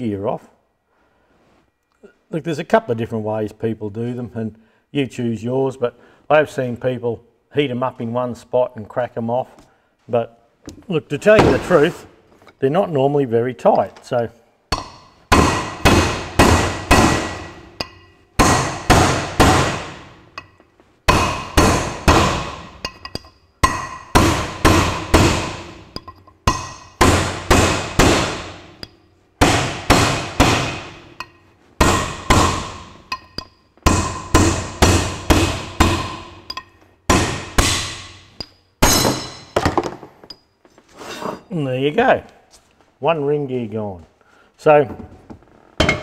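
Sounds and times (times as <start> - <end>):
hammer striking metal: 14.7 - 40.4, 45.8 - 46.0.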